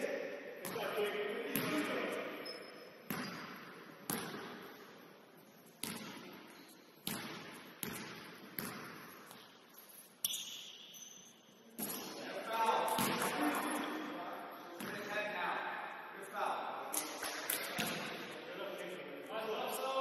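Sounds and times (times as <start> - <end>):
basketball bouncing on gym floor: 3.0 - 4.7, 5.8 - 9.5.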